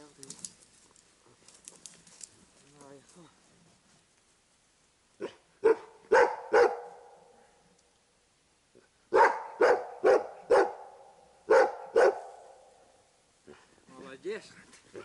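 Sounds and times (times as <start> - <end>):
dog barking: 5.2 - 7.2, 9.1 - 12.7.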